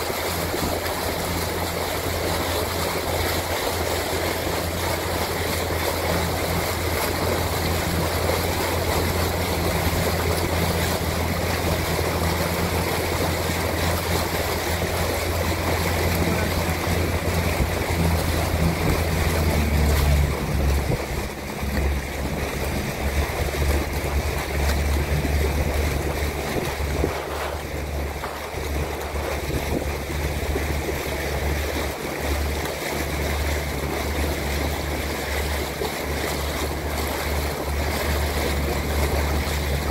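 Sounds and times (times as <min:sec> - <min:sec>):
low motor hum: 0:00.0 - 0:39.9
water rushing: 0:00.0 - 0:39.9
wind noise on microphone: 0:16.2 - 0:31.9.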